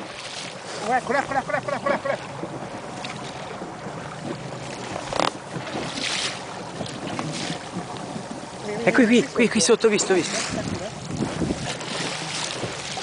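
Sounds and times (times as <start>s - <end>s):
water lapping against boat: 0.0s - 13.0s
wind buffeting microphone: 3.5s - 13.0s.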